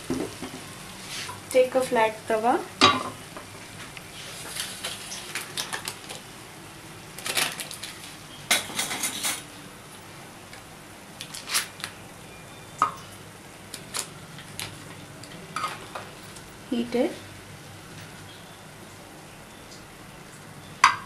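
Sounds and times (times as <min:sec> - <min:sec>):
kitchen utensils clinking and tapping: 0:08.5 - 0:09.4.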